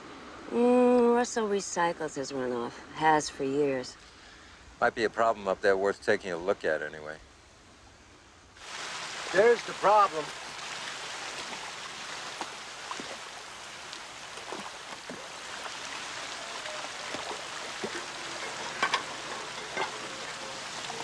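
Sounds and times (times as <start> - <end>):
water gushing from pipe: 8.6 - 21.0
water splashing: 8.6 - 21.0.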